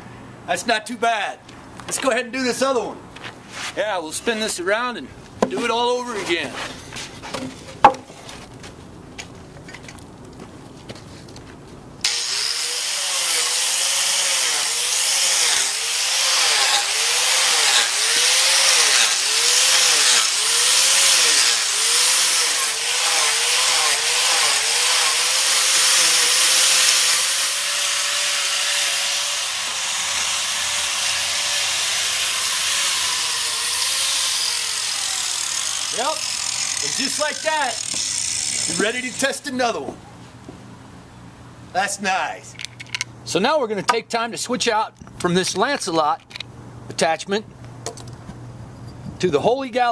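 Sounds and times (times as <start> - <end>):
angle grinder motor whine: 12.1 - 39.2
wood chips rasping: 12.1 - 39.4.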